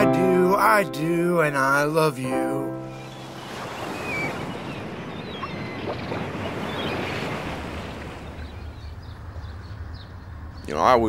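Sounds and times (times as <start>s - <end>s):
ocean surf washing: 0.0s - 9.6s
wind: 2.8s - 11.0s.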